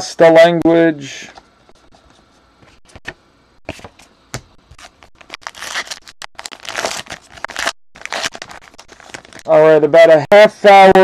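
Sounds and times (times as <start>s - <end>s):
wrapper tearing and crinkling: 4.7s - 9.5s.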